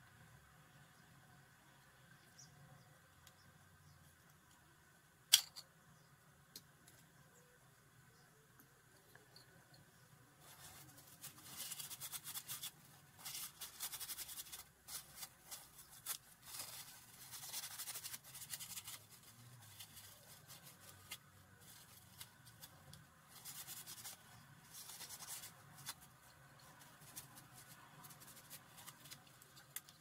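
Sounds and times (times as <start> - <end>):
cloth rubbing on metal: 10.4 - 29.5.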